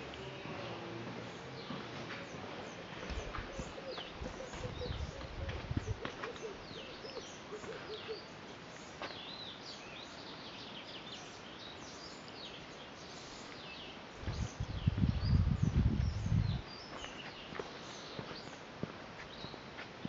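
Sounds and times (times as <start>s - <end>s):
birds chirping: 0.0s - 19.8s.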